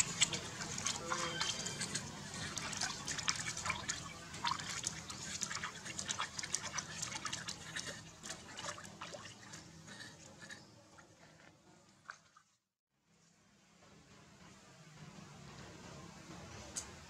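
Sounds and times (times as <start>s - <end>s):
bathwater splashing in a tub: 0.0s - 10.4s, 12.0s - 12.6s.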